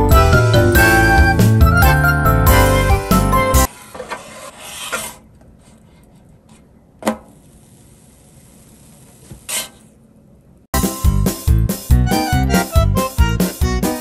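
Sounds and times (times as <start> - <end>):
spatula scraping on a griddle: 3.7 - 6.0, 9.5 - 9.9.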